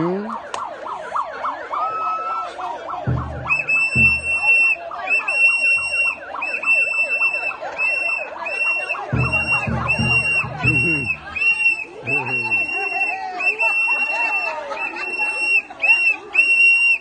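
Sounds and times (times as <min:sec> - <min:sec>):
women ululating: 0:01.4 - 0:17.0
low thuds: 0:03.1 - 0:04.8, 0:09.1 - 0:11.7
shrill whistle blasts: 0:03.2 - 0:17.0.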